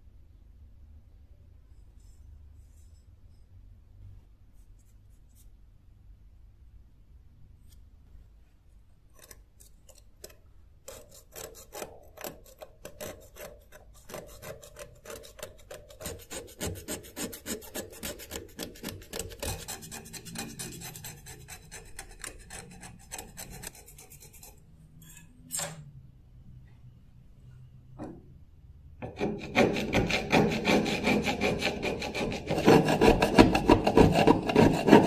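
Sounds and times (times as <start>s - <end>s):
blade scraping rust off metal: 29.0s - 35.0s.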